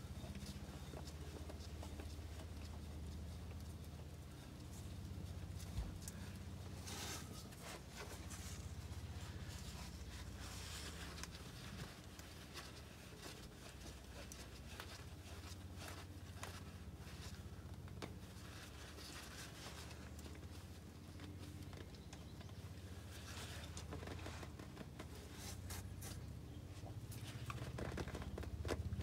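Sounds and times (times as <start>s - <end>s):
faint low hum: 0.0s - 29.0s
oil filter scraping and rustling: 4.0s - 21.9s.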